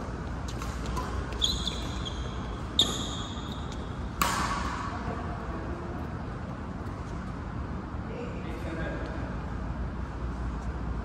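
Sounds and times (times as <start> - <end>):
low hum in hall: 0.0 - 11.0
racket hitting shuttlecock: 0.4 - 5.1.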